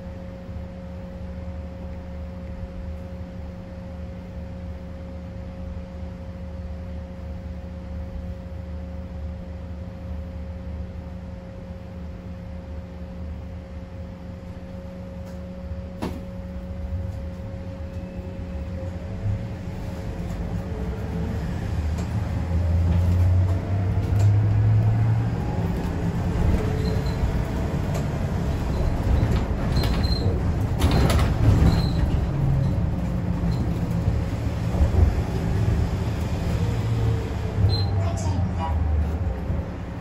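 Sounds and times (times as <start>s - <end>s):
bus engine rumble and whine: 0.0s - 40.0s
road noise: 16.8s - 40.0s.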